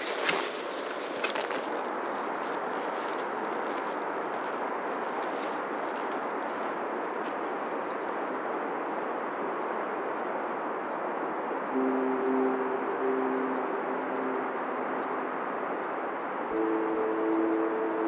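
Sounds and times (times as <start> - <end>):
insects chirping: 1.2 - 18.0
steady rushing noise: 11.7 - 18.0.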